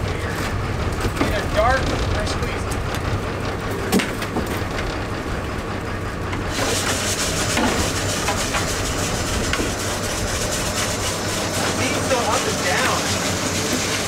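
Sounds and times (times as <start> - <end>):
boat engine running: 0.0 - 14.0
hiss: 6.5 - 9.1.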